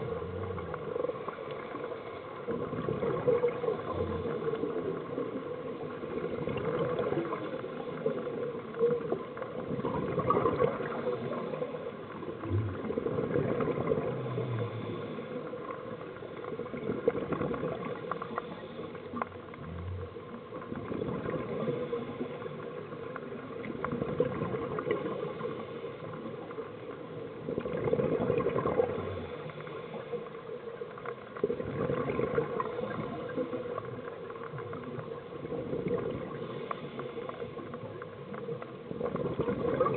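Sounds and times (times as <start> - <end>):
bubbles gurgling from a regulator: 0.0 - 26.6, 27.4 - 30.0, 31.3 - 39.9.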